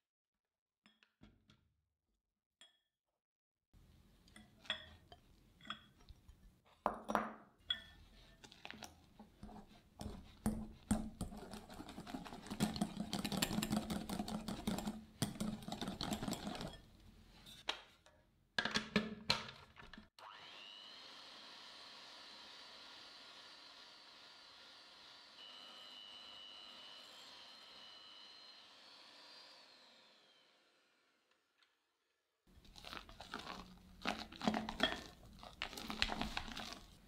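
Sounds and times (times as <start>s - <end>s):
electric hand mixer whining: 20.2s - 31.1s.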